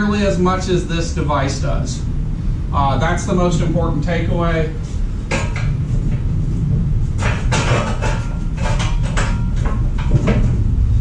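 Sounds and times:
steady low hum: 0:00.0 - 0:11.0
chain clanking and rattling: 0:07.2 - 0:10.6.

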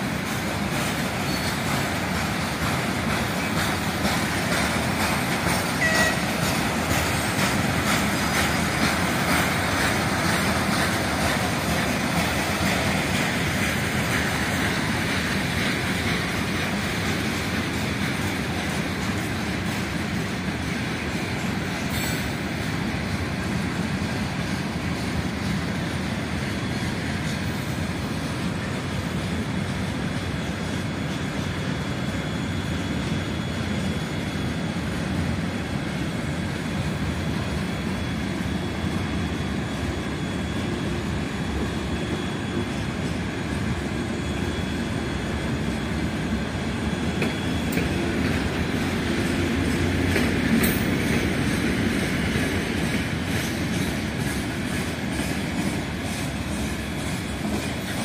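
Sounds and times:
train wheels rumbling on rails: 0:00.0 - 0:58.0
thin wheel squeal: 0:01.2 - 0:01.6.

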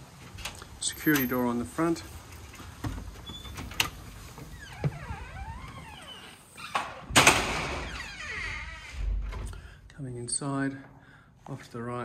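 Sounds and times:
creaking door hinges: 0:02.9 - 0:09.6
door banging shut: 0:04.7 - 0:09.5.

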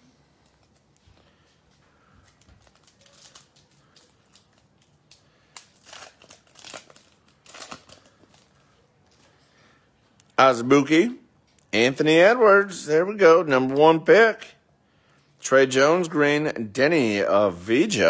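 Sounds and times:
foil wrapper crinkling: 0:02.0 - 0:09.3.

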